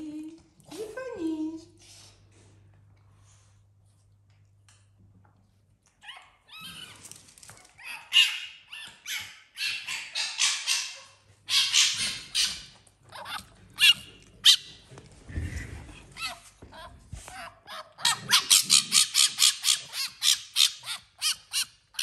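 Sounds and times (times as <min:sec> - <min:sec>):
small animal chattering squeals: 0:11.5 - 0:14.6, 0:17.7 - 0:22.0.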